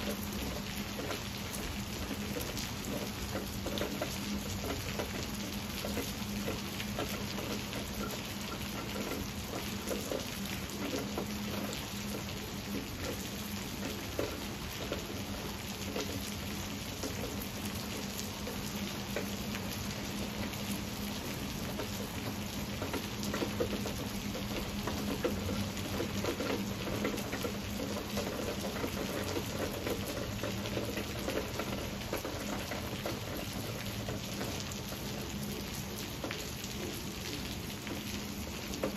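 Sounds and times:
heavy rain on foliage and concrete: 0.0s - 38.9s.

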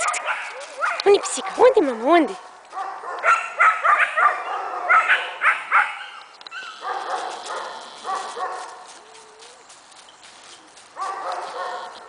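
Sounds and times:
young dog yapping: 0.0s - 1.7s.

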